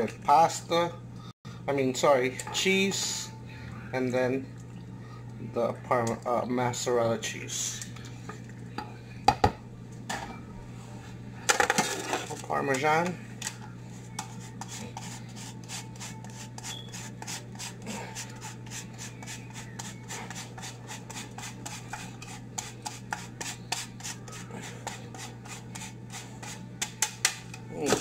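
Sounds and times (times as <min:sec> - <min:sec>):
steady low hum: 0:00.0 - 0:28.0
cheese rasping on a grater: 0:14.2 - 0:26.6.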